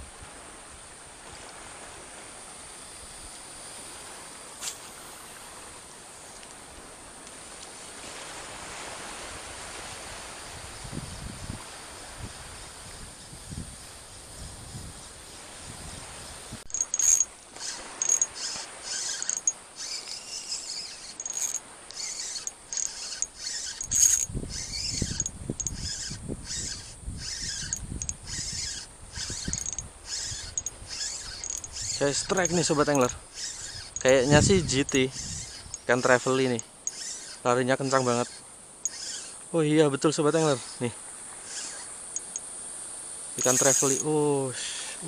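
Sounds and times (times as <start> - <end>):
soft hiss: 0.0 - 16.7, 17.3 - 45.0
fishing reel drag clicking: 4.6 - 5.4, 16.6 - 39.6, 40.3 - 42.6, 43.4 - 44.4.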